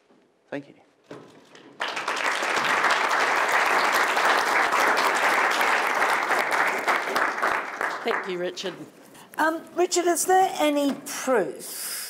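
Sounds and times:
audience applauding: 0:01.7 - 0:08.6.

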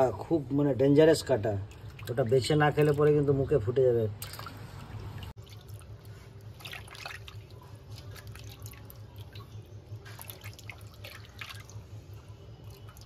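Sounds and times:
water splashing in a steel bowl: 0:01.0 - 0:13.0.

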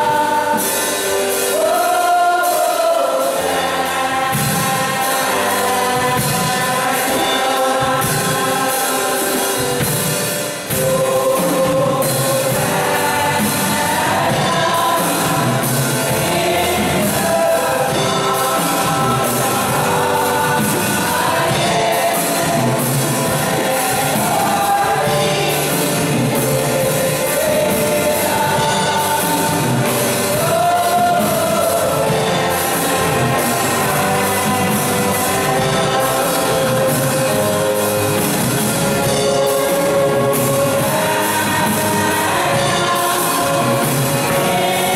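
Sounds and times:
women's choir singing in harmony: 0:00.0 - 0:44.9.

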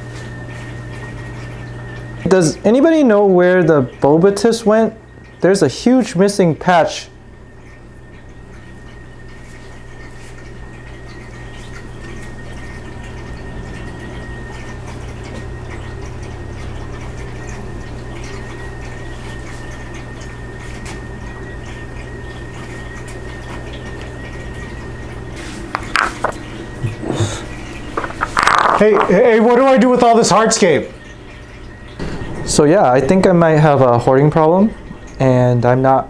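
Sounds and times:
rocks knocking on floor: 0:28.0 - 0:29.1.

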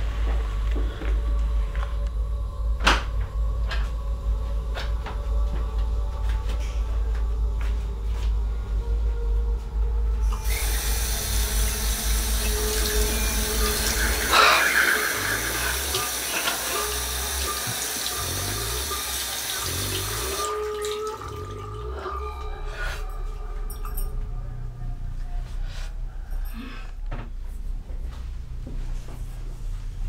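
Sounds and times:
sink tap running: 0:10.4 - 0:21.0.

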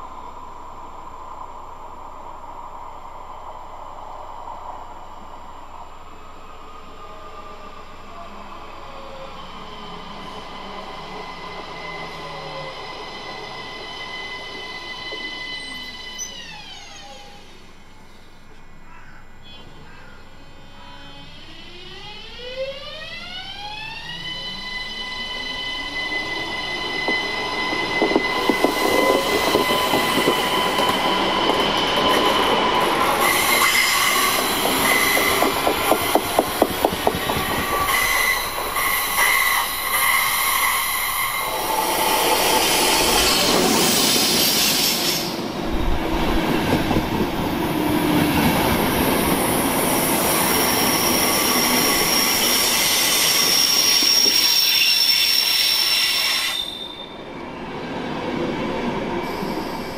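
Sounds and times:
passenger train rumbling past: 0:00.0 - 0:59.9
electric train motors whining: 0:20.4 - 0:57.0
wheels clicking over rail joints: 0:34.3 - 0:37.9.

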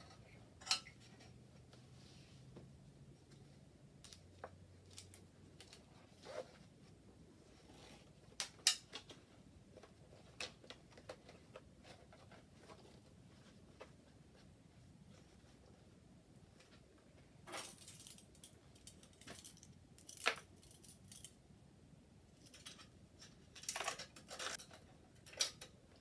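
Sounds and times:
plastic handling clicks and rustles: 0:03.3 - 0:06.1, 0:08.2 - 0:14.0, 0:22.4 - 0:26.0.

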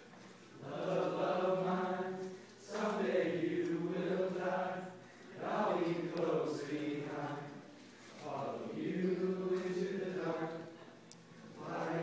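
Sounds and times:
young men singing together: 0:00.6 - 0:07.6, 0:08.2 - 0:10.8, 0:11.5 - 0:12.0.

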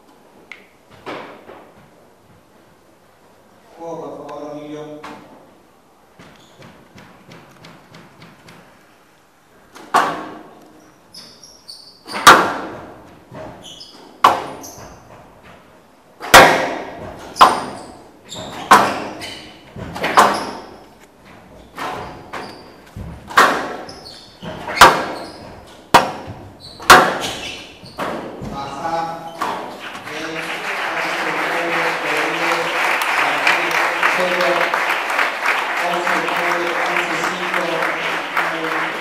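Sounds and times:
shoes squeaking on court floor: 0:06.2 - 0:07.8, 0:10.6 - 0:12.3, 0:13.0 - 0:15.6, 0:17.1 - 0:30.1
squash ball cracks off rackets: 0:09.7 - 0:10.5, 0:12.1 - 0:12.9, 0:14.2 - 0:14.7, 0:16.2 - 0:17.8, 0:20.0 - 0:20.8, 0:23.2 - 0:28.4.

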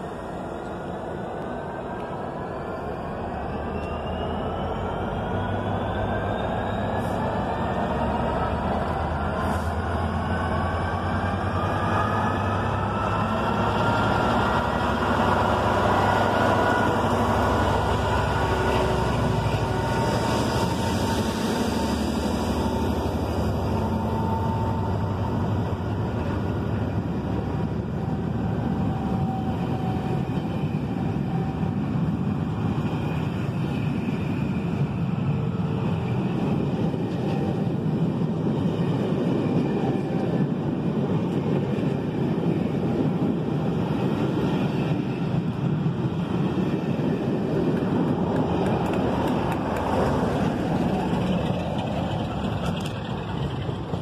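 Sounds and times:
diesel locomotive engine drone: 0:00.0 - 0:54.0
train wheels rolling on rails: 0:00.0 - 0:54.0.

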